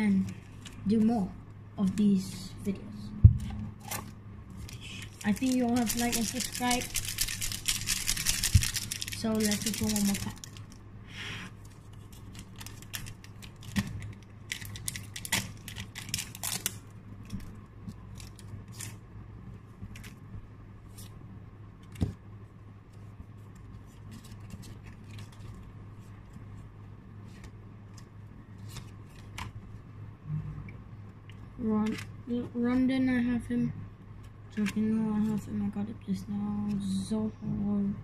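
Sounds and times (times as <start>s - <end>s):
steady low hum: 0.0s - 38.0s
cards being shuffled: 3.8s - 10.8s
plastic wrapper crinkling and tearing: 4.0s - 10.8s, 11.6s - 19.0s, 23.9s - 25.6s.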